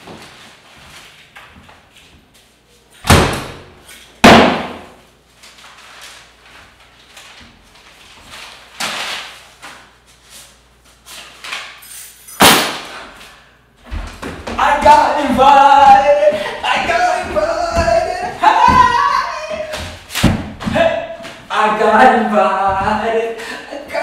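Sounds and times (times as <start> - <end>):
door slamming: 3.1 - 3.7.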